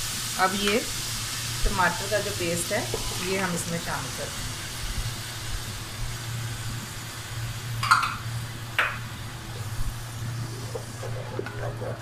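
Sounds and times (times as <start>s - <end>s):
paste sizzling in hot oil: 0.0s - 12.0s
wooden spoon stirring in pot: 10.2s - 12.0s.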